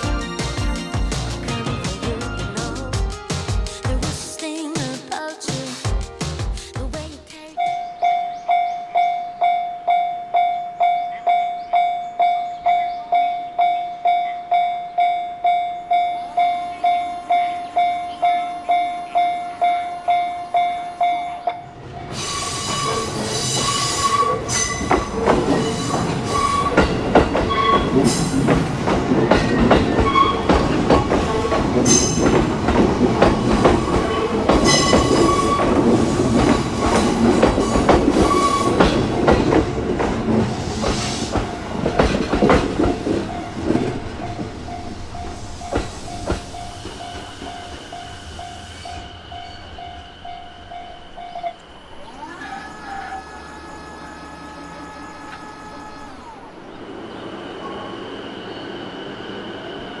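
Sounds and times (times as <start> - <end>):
crossing warning alarm: 7.6 - 60.0
wheel squeal: 22.1 - 28.3, 29.2 - 30.7, 33.8 - 39.0
train wheels clacking over joints: 22.6 - 51.7.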